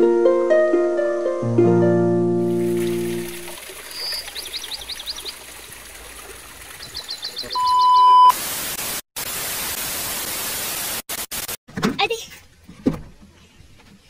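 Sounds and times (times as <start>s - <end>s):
test-tone beep: 7.6s - 8.3s.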